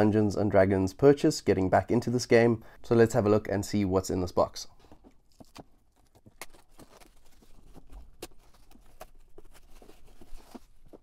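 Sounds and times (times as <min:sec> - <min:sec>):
plastic shrink wrap tearing: 0:05.3 - 0:10.8.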